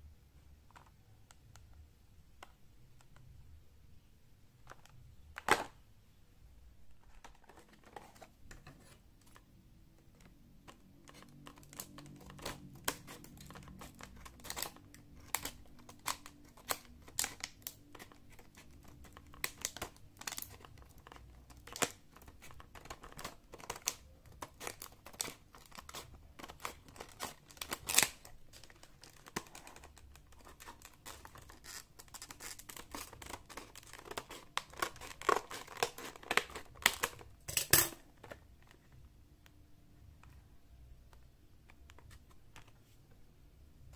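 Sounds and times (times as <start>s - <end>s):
plastic blister pack crinkling: 6.9s - 37.5s.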